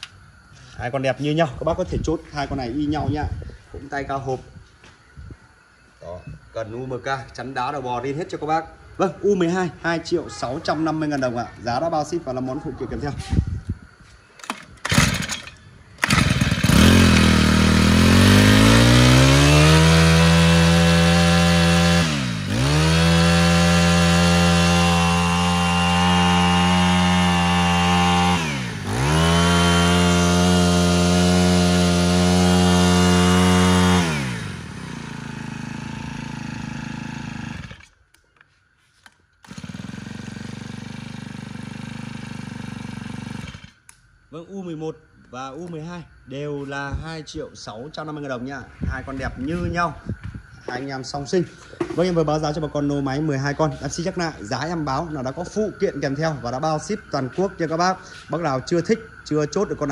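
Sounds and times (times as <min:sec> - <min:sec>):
brush cutter engine revving: 0:14.4 - 0:38.0, 0:39.0 - 0:44.0.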